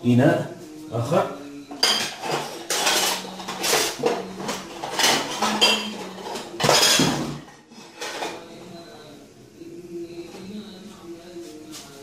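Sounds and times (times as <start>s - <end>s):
glasses and dishes clattering: 1.7s - 8.6s.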